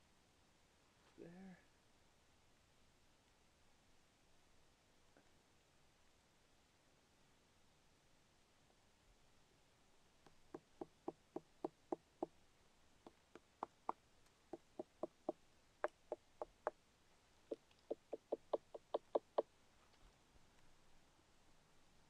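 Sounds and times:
fingers knocking on hard fungus: 0:10.5 - 0:12.3, 0:13.1 - 0:16.8, 0:17.5 - 0:19.5.

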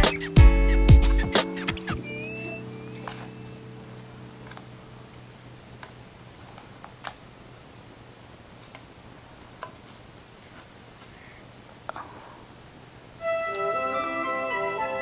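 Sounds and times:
held musical tone: 0:00.0 - 0:05.2, 0:13.2 - 0:15.0.

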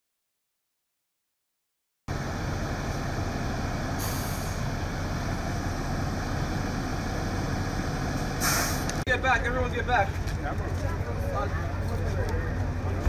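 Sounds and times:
heavy truck engine idling: 0:02.1 - 0:13.0
air brake hiss: 0:04.0 - 0:04.7, 0:08.4 - 0:09.0.

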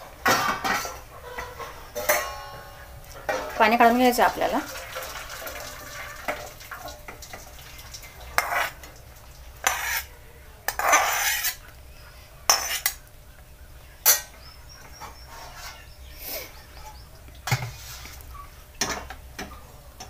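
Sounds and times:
steel kitchen vessels clanking: 0:00.0 - 0:08.9, 0:10.7 - 0:11.6, 0:14.0 - 0:16.0, 0:16.7 - 0:18.0, 0:18.8 - 0:20.0.

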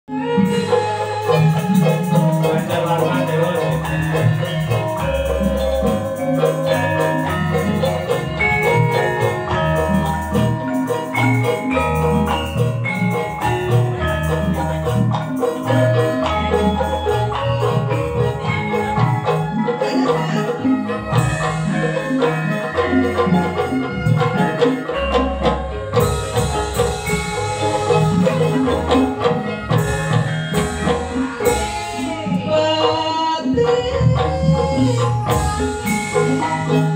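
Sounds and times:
gamelan ensemble playing: 0:00.1 - 0:36.9.

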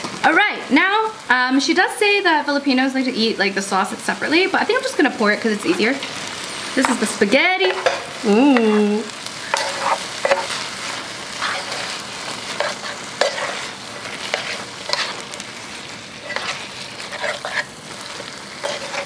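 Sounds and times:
sauce sizzling in a pan: 0:00.0 - 0:19.0
wooden spoon scraping a pan: 0:04.8 - 0:08.2, 0:09.4 - 0:19.0.

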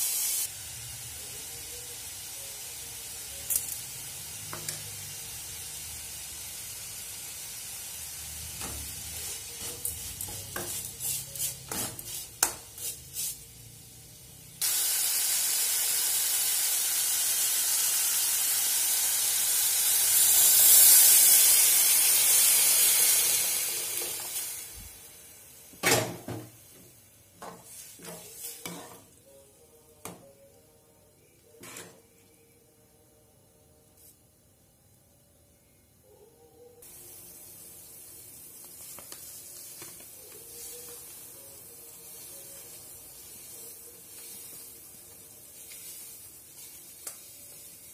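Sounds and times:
vegetables frying in oil: 0:00.0 - 0:26.8, 0:36.8 - 0:47.9
loud steady sizzle: 0:00.0 - 0:29.6, 0:36.8 - 0:47.9.

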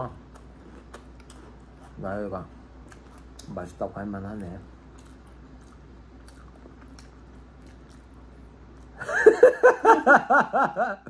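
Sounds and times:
person laughing: 0:09.0 - 0:11.0.

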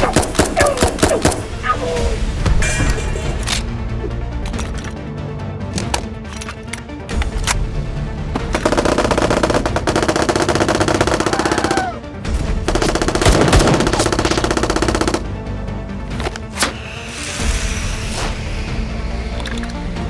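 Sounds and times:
automatic gunfire: 0:00.0 - 0:01.4, 0:08.6 - 0:11.8, 0:12.7 - 0:15.3
background music: 0:00.0 - 0:20.0.

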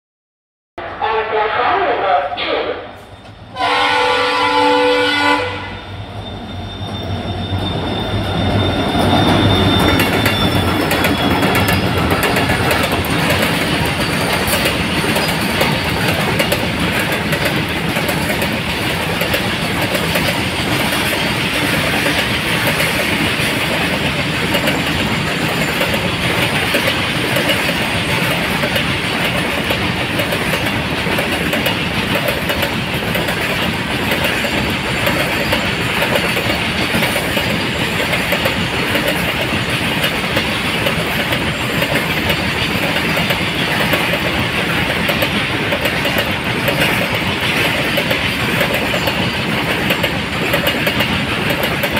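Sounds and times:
diesel locomotives passing: 0:00.8 - 0:51.9
train horn blast: 0:03.5 - 0:05.9
wagon wheels clattering over rail joints: 0:09.7 - 0:51.9.

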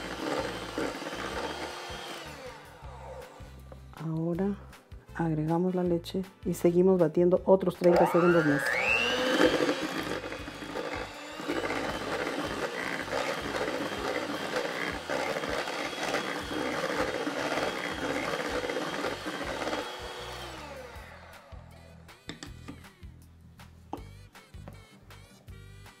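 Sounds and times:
electric hand mixer whirring: 0:00.0 - 0:03.6, 0:07.8 - 0:22.9.

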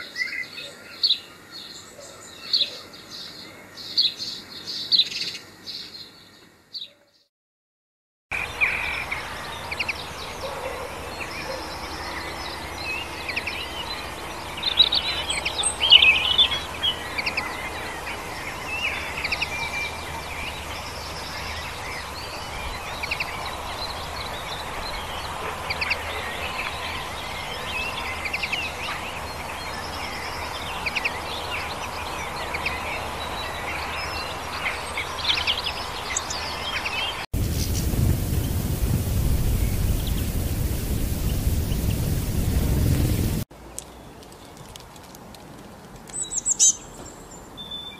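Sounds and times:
bird twittering and trilling: 0:25.7 - 0:43.4, 0:46.2 - 0:47.0
steady background hiss: 0:37.4 - 0:43.4.

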